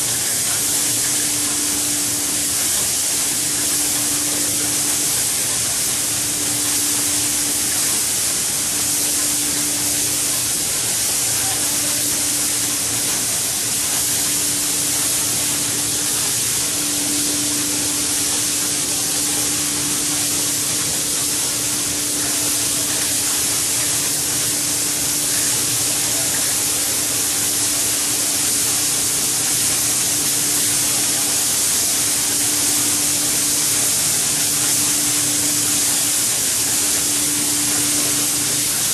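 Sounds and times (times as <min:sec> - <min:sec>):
low machine hum: 0:00.0 - 0:28.6
spray guns hissing: 0:00.0 - 0:38.9.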